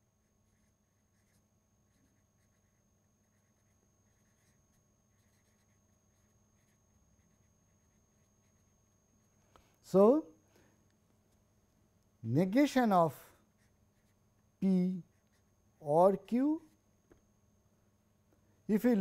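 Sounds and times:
faint steady hum: 0:00.0 - 0:19.0
marker scratching on paper: 0:00.2 - 0:08.8, 0:13.6 - 0:14.2.

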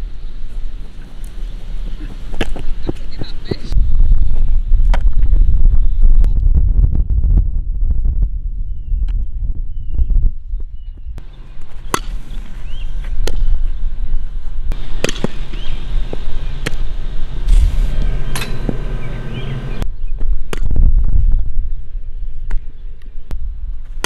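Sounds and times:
wind on microphone: 0:00.0 - 0:11.3, 0:15.6 - 0:24.0
softball striking gloves and bat: 0:02.3 - 0:03.6, 0:11.6 - 0:13.7, 0:14.7 - 0:16.8.

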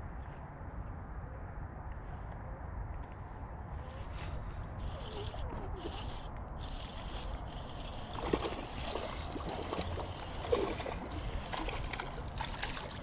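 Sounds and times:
fish splashing in water: 0:08.1 - 0:13.0.

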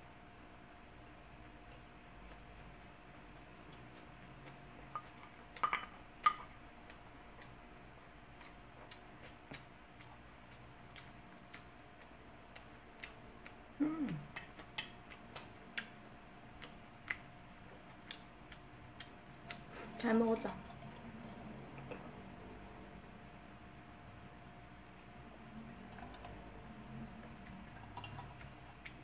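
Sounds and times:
faint background hum: 0:00.0 - 0:29.0
mouth clicks and chewing: 0:01.1 - 0:05.7, 0:08.3 - 0:21.1, 0:27.0 - 0:29.0
person humming low mm: 0:13.8 - 0:14.4.

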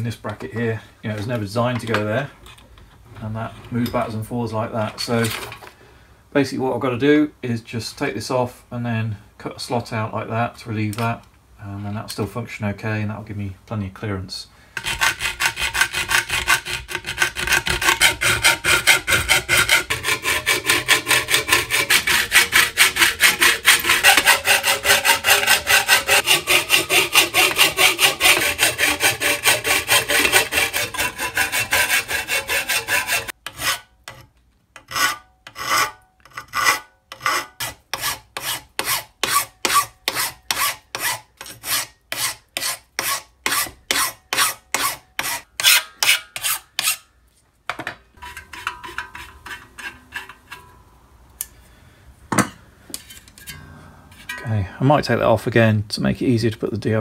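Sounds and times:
hand file filing metal: 0:14.8 - 0:34.2, 0:34.8 - 0:47.1, 0:48.2 - 0:50.7
hacksaw cutting metal: 0:14.8 - 0:47.1, 0:48.2 - 0:50.8.

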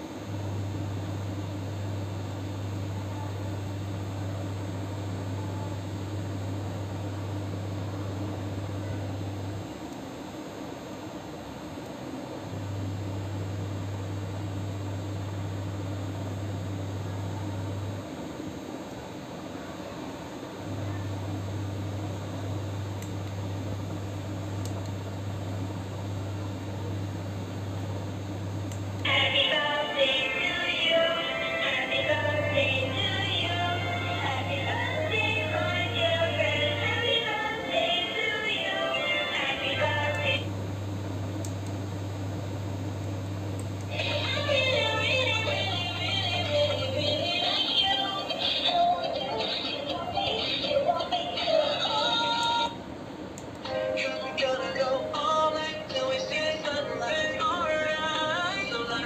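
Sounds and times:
steady low hum: 0:00.0 - 0:59.0
faint click: 0:23.0 - 0:23.4.

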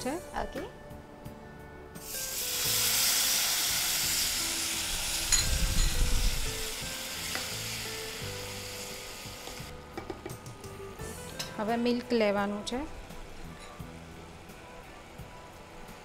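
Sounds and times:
water sizzling in hot fat: 0:02.0 - 0:09.7.

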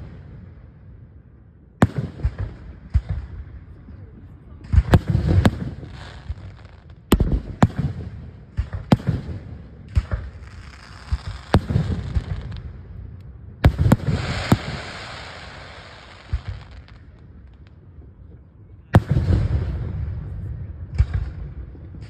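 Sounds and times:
firework hiss: 0:13.8 - 0:16.9.

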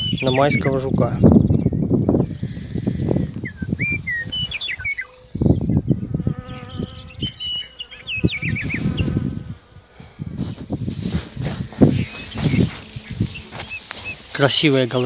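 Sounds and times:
songbirds chirping: 0:00.0 - 0:15.0
low rustling noise: 0:09.2 - 0:15.0.

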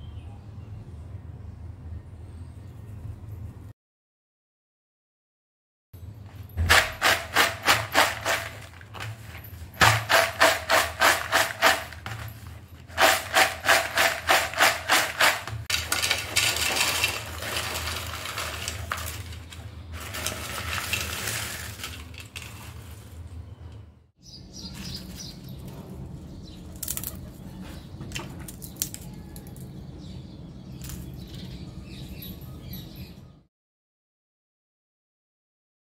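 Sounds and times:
chips rattling in plastic bowl: 0:06.6 - 0:23.4
chips poured onto plate: 0:06.7 - 0:23.4.

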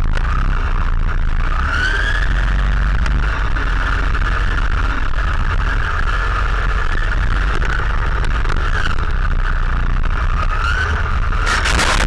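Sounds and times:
tyres rumbling on track: 0:00.0 - 0:12.0.

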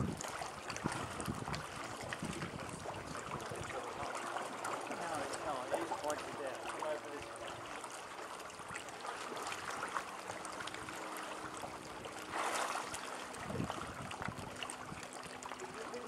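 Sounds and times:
water splash: 0:00.0 - 0:15.6
water lapping against rocks: 0:00.0 - 0:16.0.

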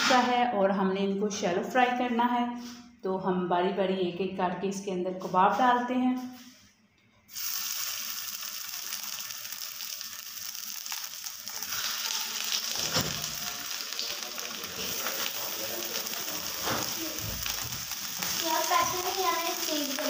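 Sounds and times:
meat sizzling in oil: 0:07.3 - 0:20.0.

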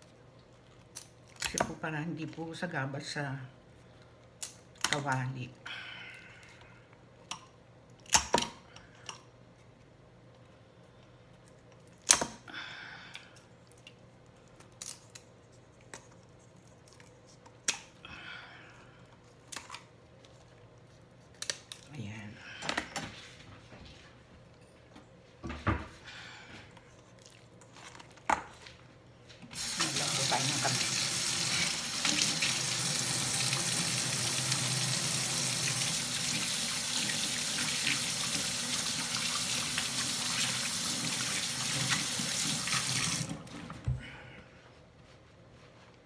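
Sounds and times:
faucet running into metal sink: 0:29.6 - 0:43.3
hands washing under water: 0:29.6 - 0:43.5.

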